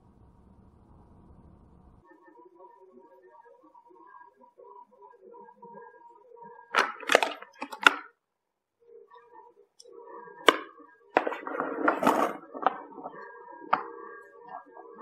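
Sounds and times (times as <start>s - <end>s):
plastic toys clicking and clattering: 6.8s - 8.1s
toys rolling on wooden board: 10.5s - 13.9s.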